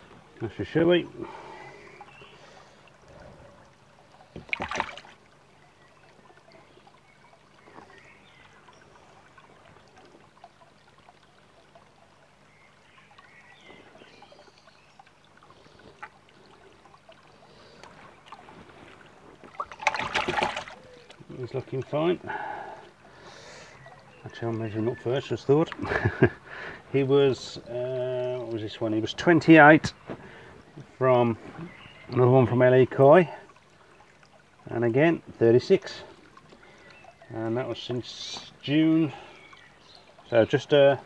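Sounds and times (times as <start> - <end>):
faint water movement: 0.0 - 41.0
water splashing in plastic bowl: 4.2 - 5.4, 15.1 - 23.2.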